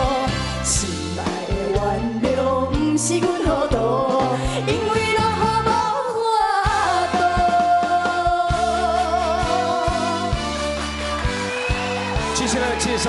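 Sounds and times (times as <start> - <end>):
two women singing a duet: 0.0 - 10.4
pop music with steady beat: 0.0 - 13.0.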